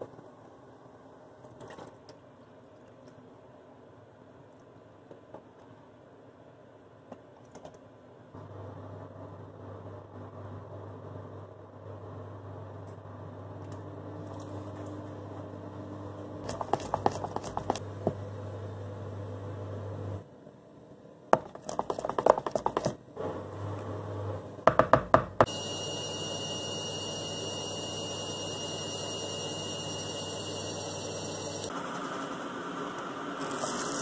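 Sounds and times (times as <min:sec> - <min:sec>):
washing machine running: 0:25.4 - 0:34.0.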